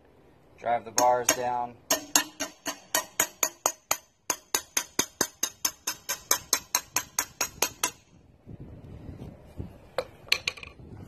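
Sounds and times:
rapid hammer blows on metal: 0.9 - 8.0.

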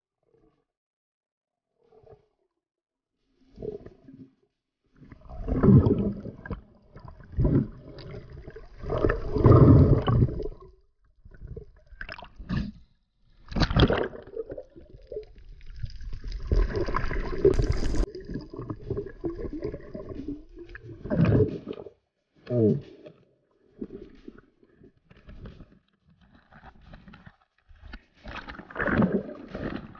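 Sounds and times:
muffled underwater gurgling: 5.3 - 10.6.

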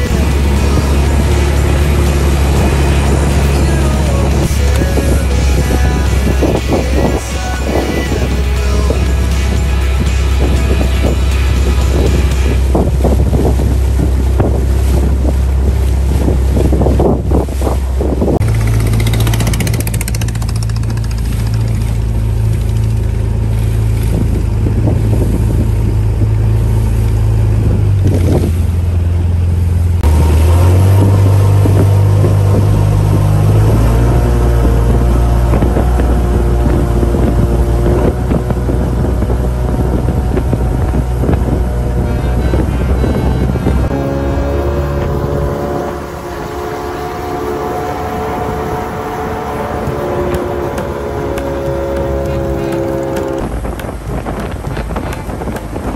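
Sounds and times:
motorboat engine droning: 0.0 - 55.9
water rushing past hull: 0.0 - 55.9
wind buffeting microphone: 0.0 - 55.9.

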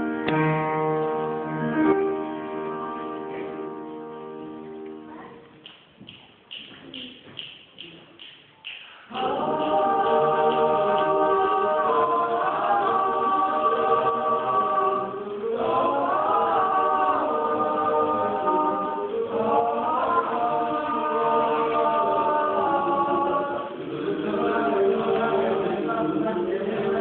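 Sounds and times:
choir singing a cappella: 9.0 - 27.0.

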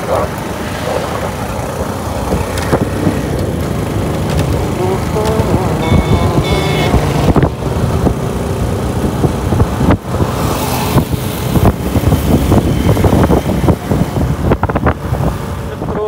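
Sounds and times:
vehicle engine rough rumble: 0.0 - 16.0.

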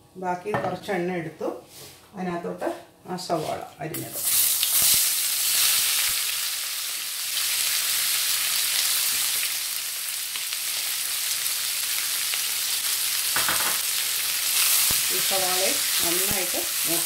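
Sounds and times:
onions sizzling in oil: 4.1 - 17.0.

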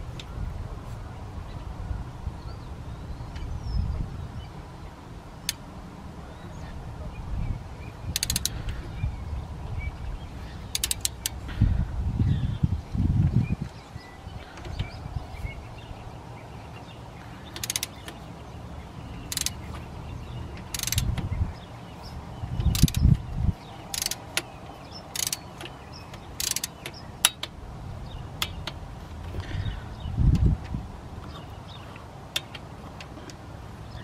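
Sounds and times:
socket ratchet clicking: 8.1 - 8.6, 10.7 - 11.4, 17.5 - 18.2, 19.2 - 19.7, 20.6 - 21.3, 22.6 - 23.2, 23.8 - 27.6.

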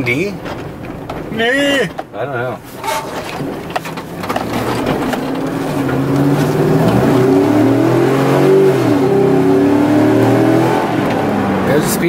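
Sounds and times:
pickup engine accelerating: 3.2 - 12.0.

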